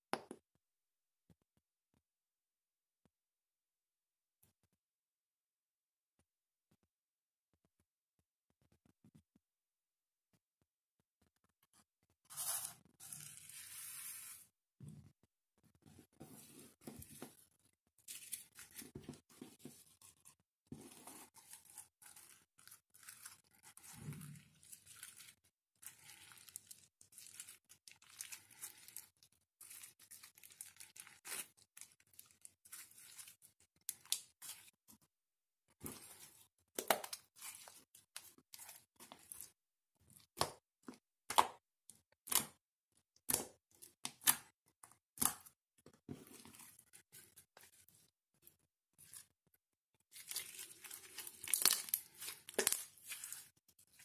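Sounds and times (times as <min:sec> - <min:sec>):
slime crackling and tearing: 0:50.2 - 0:53.5.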